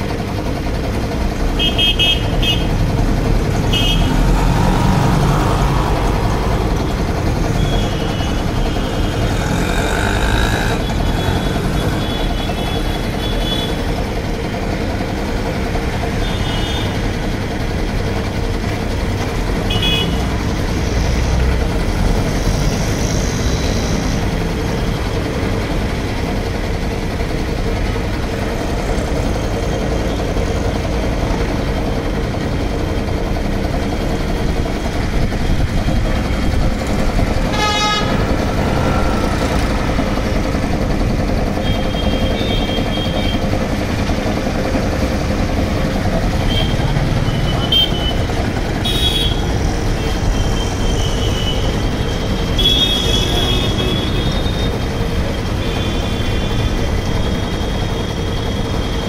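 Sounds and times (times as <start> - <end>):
air compressor running: 0.0 - 59.0
electric motor hum: 4.2 - 13.7.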